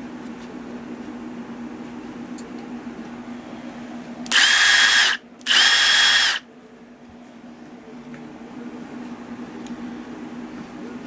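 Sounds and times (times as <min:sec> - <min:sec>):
impact driver high whine: 0:04.2 - 0:06.5.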